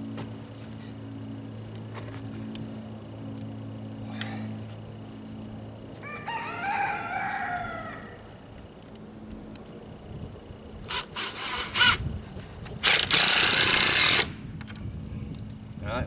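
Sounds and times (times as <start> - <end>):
low hum: 0.0 - 16.0
rooster crowing: 6.0 - 8.4.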